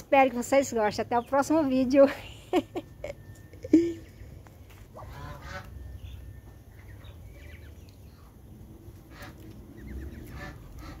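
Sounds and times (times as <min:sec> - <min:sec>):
birds chirping: 0:00.0 - 0:11.0
low rumble: 0:02.9 - 0:11.0.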